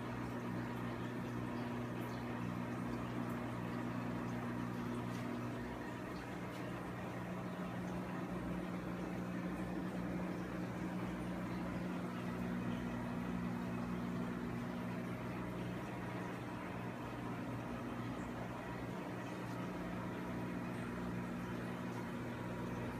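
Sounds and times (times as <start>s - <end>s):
aquarium air pump hum: 0.0s - 22.9s.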